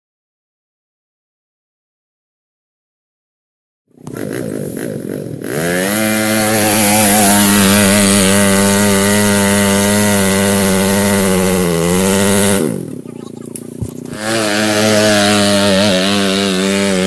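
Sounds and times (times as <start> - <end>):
motorcycle engine revving hard: 3.9 - 17.0.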